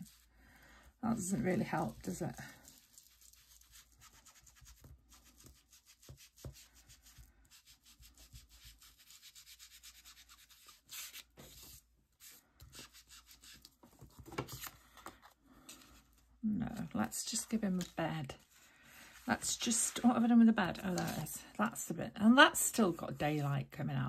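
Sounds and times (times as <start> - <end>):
ink applicator scuffing paper: 1.3 - 14.6, 16.7 - 21.3.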